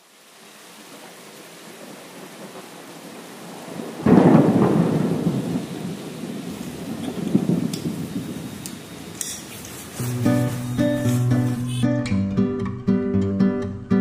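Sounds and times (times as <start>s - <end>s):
rain hiss: 0.0s - 11.9s
thunder clap rumbling: 0.9s - 9.2s.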